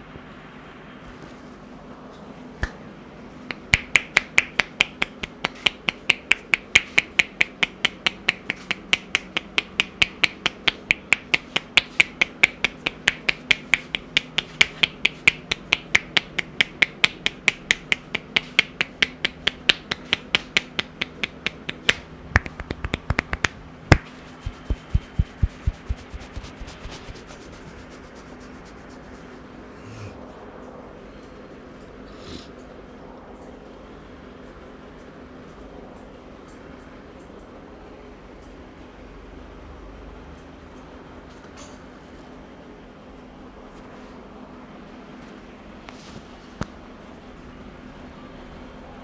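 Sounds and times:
finger snap: 2.6s - 2.8s, 3.5s - 26.8s
hands clapping on scalp: 3.5s - 28.7s
soft patter on scalp: 22.4s - 29.6s.

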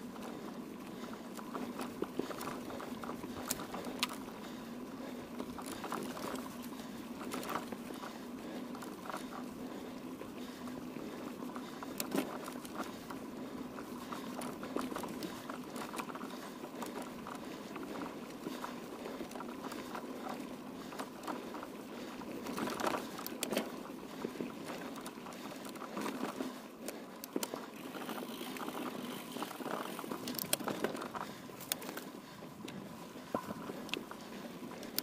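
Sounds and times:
bike clicks and rattles: 0.0s - 35.0s
bike tyres rolling on rough ground: 0.0s - 35.0s.

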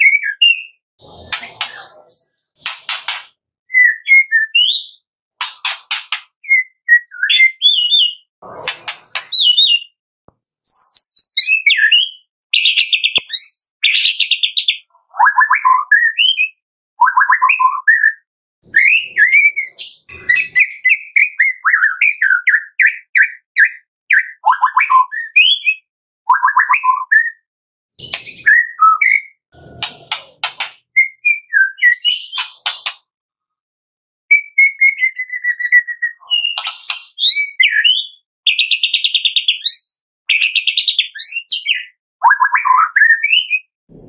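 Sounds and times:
bird singing whistled notes: 3.7s - 5.1s, 6.4s - 10.0s, 10.6s - 27.4s, 31.0s - 32.6s, 34.3s - 43.7s
bird rattling trills: 5.4s - 6.3s.

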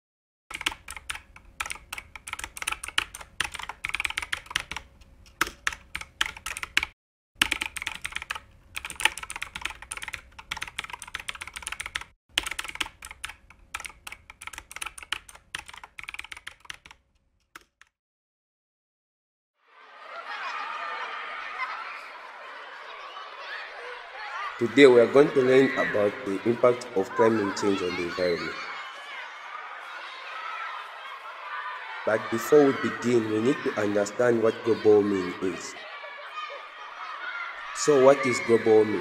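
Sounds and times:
computer keyboard typing: 0.5s - 17.9s.

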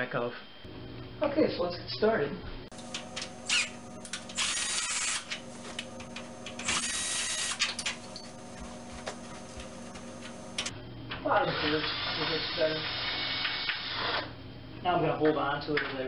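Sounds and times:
power drill running: 2.7s - 10.7s, 11.5s - 14.3s.

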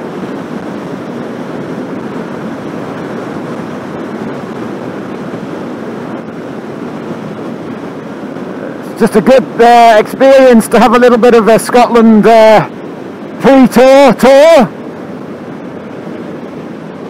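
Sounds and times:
motorcycle cruising: 0.0s - 9.9s
wind rushing on microphone: 0.0s - 17.0s.

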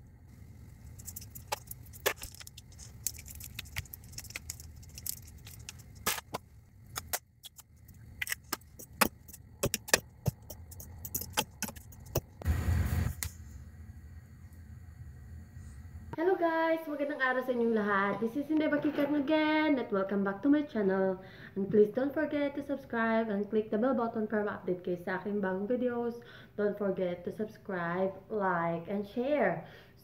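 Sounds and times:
pot boiling on gas stove: 0.0s - 18.6s.

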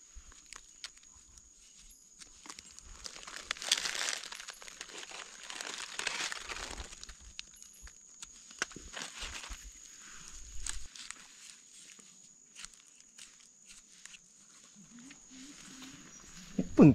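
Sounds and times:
dry leaves rustling: 0.2s - 16.5s.

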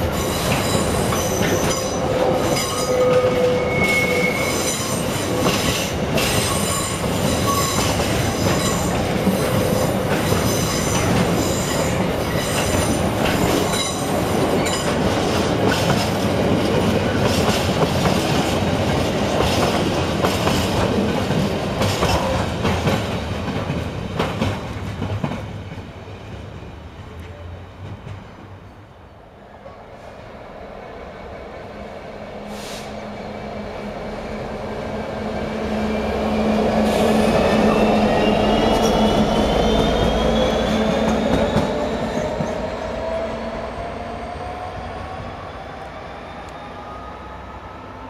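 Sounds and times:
train wagons rumbling past: 0.0s - 48.0s
high wheel squeal: 0.2s - 5.2s.

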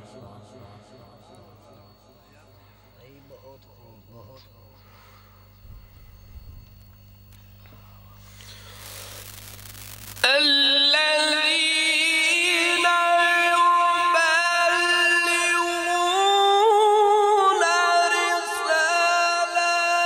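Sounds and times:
faint background noise: 0.0s - 20.0s
man reciting melodically through microphone: 10.2s - 20.0s.

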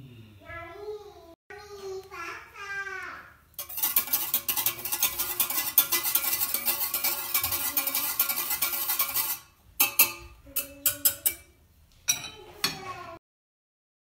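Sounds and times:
whisk clattering in saucepan: 3.6s - 11.6s
whisk tapping on metal: 3.6s - 12.9s.

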